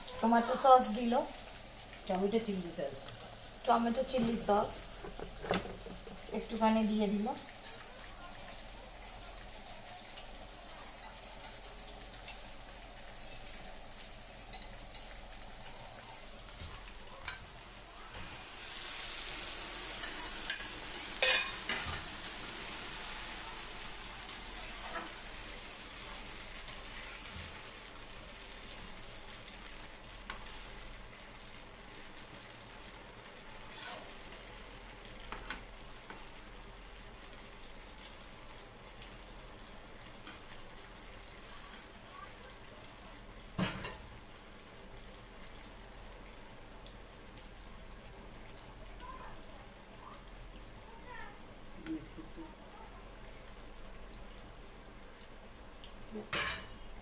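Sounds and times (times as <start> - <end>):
chicken sizzling in a pan: 0.0 - 57.0
metal spatula scraping a pan: 19.9 - 22.0, 33.7 - 34.1.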